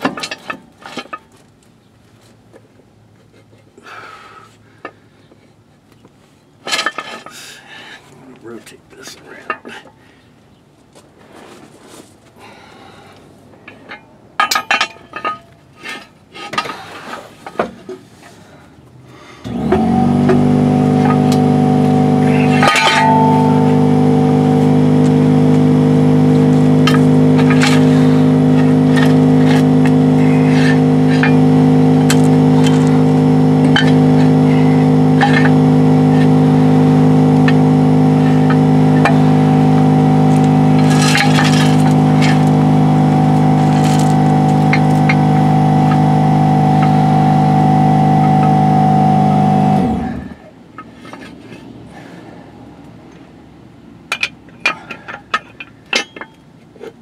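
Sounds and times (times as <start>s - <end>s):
machine humming loudly: 19.5s - 50.4s.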